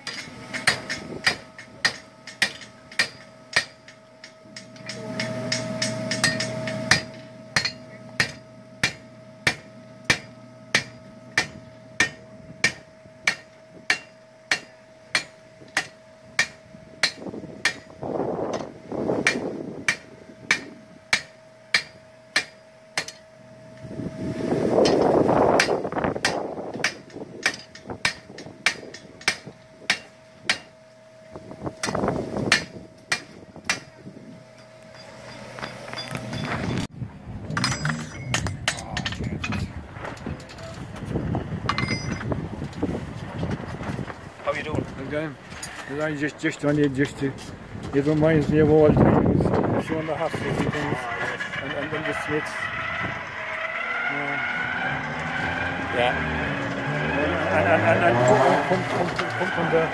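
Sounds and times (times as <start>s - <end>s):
hammer striking iron on anvil: 0.0s - 23.3s, 25.6s - 30.8s, 31.8s - 34.0s, 37.6s - 39.6s, 41.7s - 42.2s.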